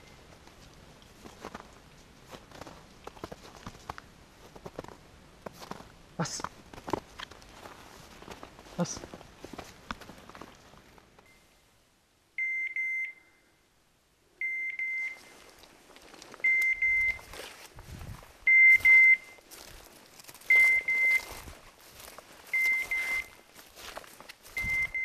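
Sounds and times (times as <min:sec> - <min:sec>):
rustling: 0:00.0 - 0:11.4, 0:15.0 - 0:25.0
electronic collar beeper beeping: 0:12.4 - 0:13.4, 0:14.4 - 0:15.4, 0:16.4 - 0:17.3, 0:18.5 - 0:19.4, 0:20.5 - 0:21.4, 0:22.5 - 0:23.4, 0:24.6 - 0:25.0.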